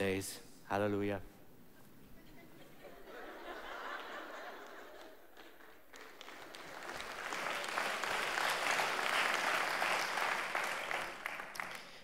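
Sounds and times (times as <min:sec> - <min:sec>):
congregation applauding: 0:03.8 - 0:12.0.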